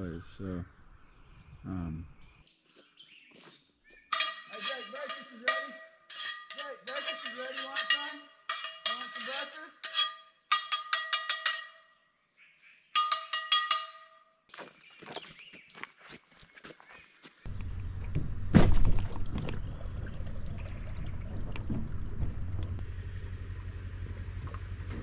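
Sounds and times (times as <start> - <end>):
metal objects clanking and ringing: 4.1 - 12.0, 12.9 - 14.3.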